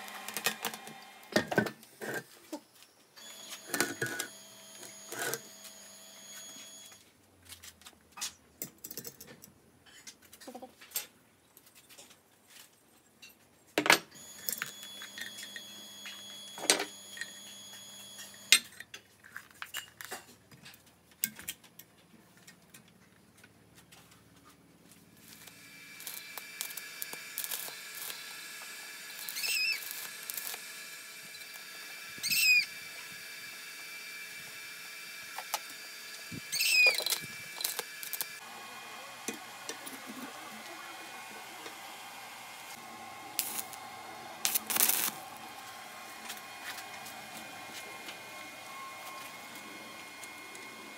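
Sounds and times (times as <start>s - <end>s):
metal parts on wooden bench: 0.2s - 5.5s, 7.4s - 30.6s, 35.3s - 38.3s, 43.4s - 43.8s, 44.4s - 45.2s
short squeaks: 29.2s - 30.5s, 32.2s - 32.7s, 36.5s - 37.8s
steady hum: 35.9s - 50.9s.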